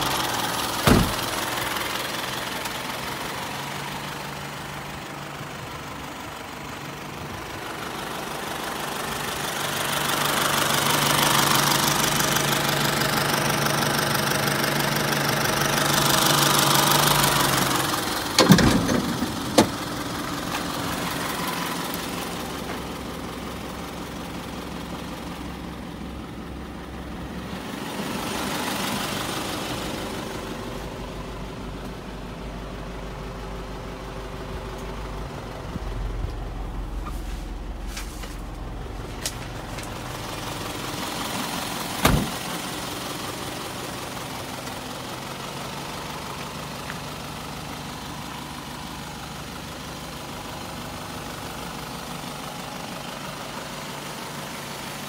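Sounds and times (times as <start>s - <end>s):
truck engine idling: 0.0s - 55.0s
sharp knock: 0.9s - 1.2s.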